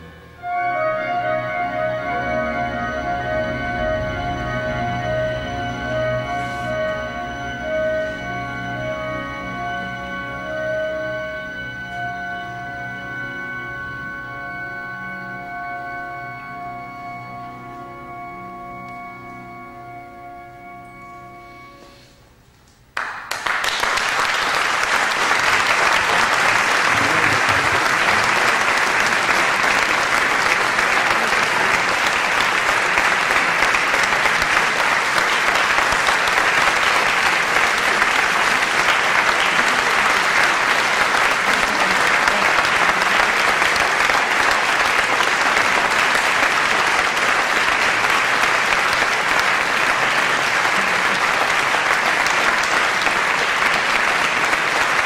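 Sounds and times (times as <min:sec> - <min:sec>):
audience applauding: 0:23.0 - 0:55.0.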